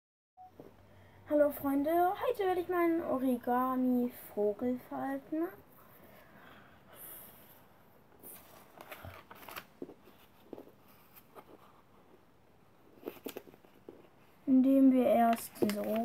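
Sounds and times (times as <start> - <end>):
paper rustling and creasing: 8.2 - 12.2, 12.8 - 14.4, 15.1 - 16.0.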